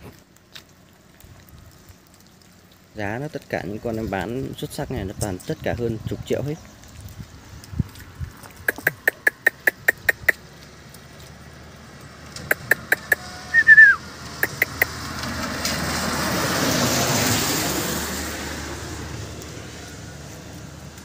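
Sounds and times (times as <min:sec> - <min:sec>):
vehicle passing: 0:06.5 - 0:21.0
quick sharp clicks: 0:08.6 - 0:10.4, 0:12.4 - 0:14.9.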